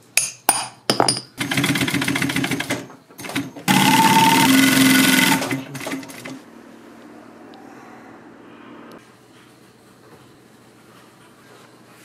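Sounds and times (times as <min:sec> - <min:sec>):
sewing machine clatter: 0:01.4 - 0:06.4.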